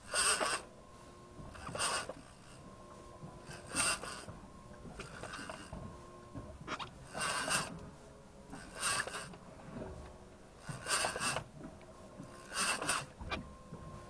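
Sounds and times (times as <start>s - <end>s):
fishing reel cranking: 0.1s - 0.6s, 1.6s - 2.2s, 3.6s - 4.2s, 7.1s - 7.7s, 8.6s - 9.3s, 10.7s - 11.4s, 12.3s - 13.2s.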